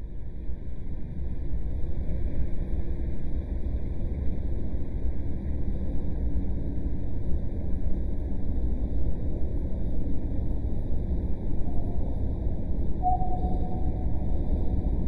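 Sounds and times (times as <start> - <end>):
low rumbling drone: 11.2 - 15.0.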